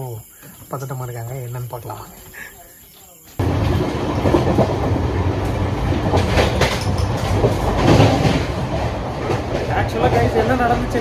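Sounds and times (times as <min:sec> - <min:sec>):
train coach rumble: 0:03.4 - 0:11.0
wheels clickety-clack: 0:03.5 - 0:11.0.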